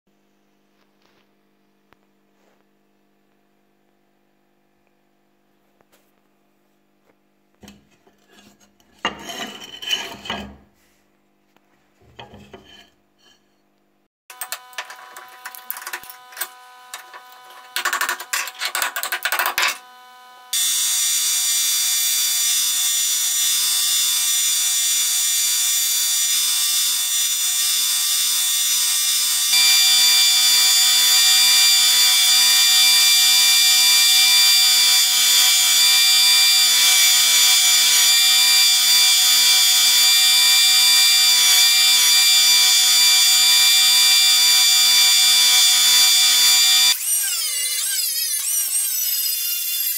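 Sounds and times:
motor hum: 0:14.3 - 0:20.9
knocks and clicks at a vise: 0:17.0 - 0:19.8
blade hissing on grinder belt: 0:20.5 - 0:47.9.

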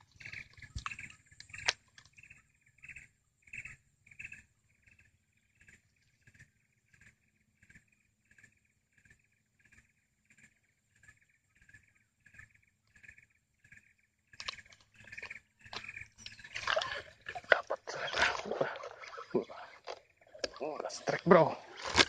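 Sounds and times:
faint repeating call: 0:15.8 - 0:21.8.

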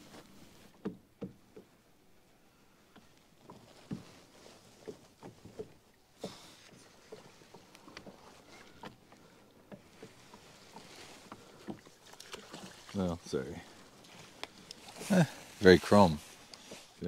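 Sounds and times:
rustling noise: 0:03.3 - 0:05.6, 0:13.8 - 0:17.0
low hiss of water: 0:05.9 - 0:17.0.

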